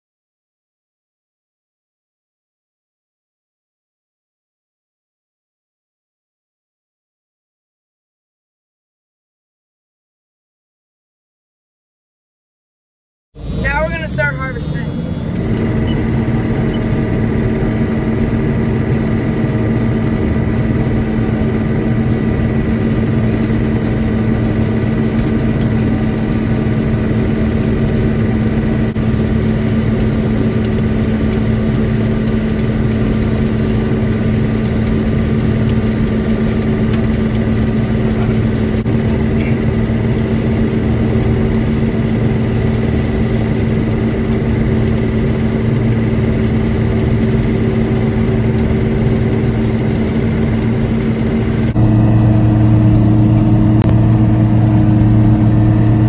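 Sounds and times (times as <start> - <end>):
combine harvester droning: 13.4 - 56.0.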